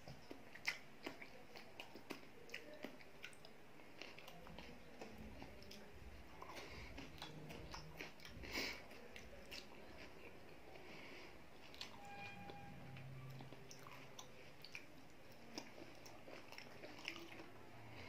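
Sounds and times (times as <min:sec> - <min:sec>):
person chewing: 0:00.0 - 0:18.0.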